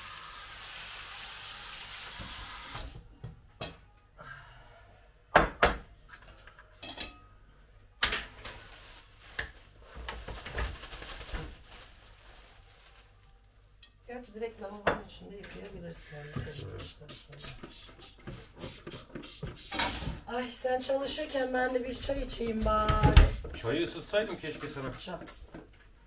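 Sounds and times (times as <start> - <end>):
dishes and pots clanking: 3.2 - 3.9, 5.3 - 7.3, 8.0 - 8.5.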